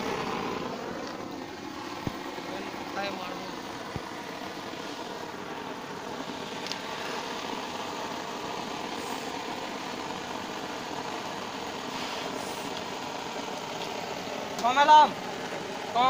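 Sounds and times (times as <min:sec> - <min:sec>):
steady mechanical drone: 0:00.0 - 0:16.0
faint hiss: 0:03.4 - 0:14.6.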